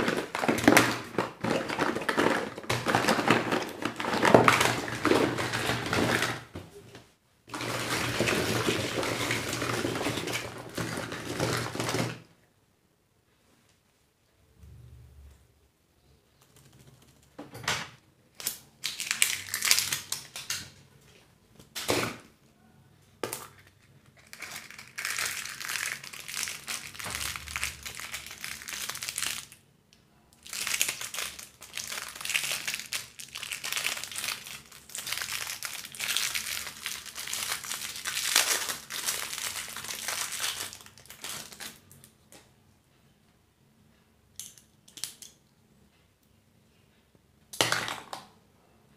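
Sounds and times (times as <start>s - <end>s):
wrappers crinkling: 18.4s - 20.6s, 24.1s - 29.6s, 30.4s - 42.0s.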